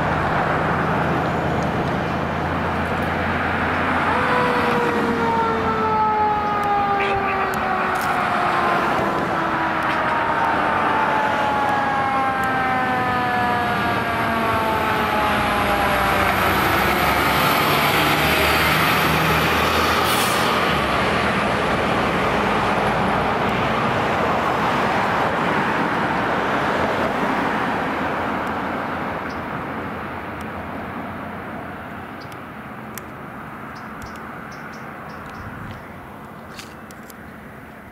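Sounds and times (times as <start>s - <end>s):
truck engine and tyre noise: 0.0s - 37.9s
fire truck siren falling in pitch: 3.8s - 20.8s.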